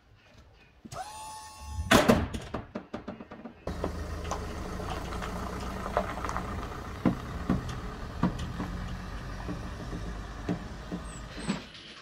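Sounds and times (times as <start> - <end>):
van engine running: 3.6 - 11.7
tyres on loose gravel: 3.6 - 12.0.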